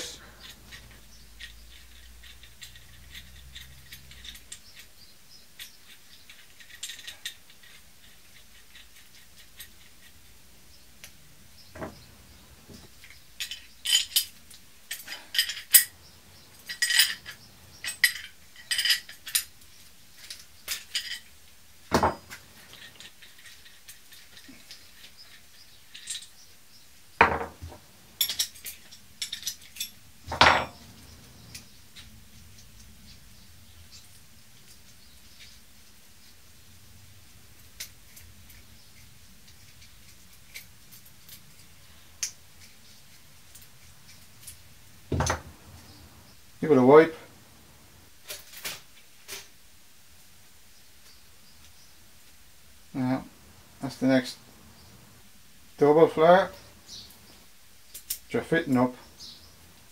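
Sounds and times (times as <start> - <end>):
metal tools clinking on pipe: 12.7 - 19.5, 20.2 - 21.3, 27.2 - 31.6.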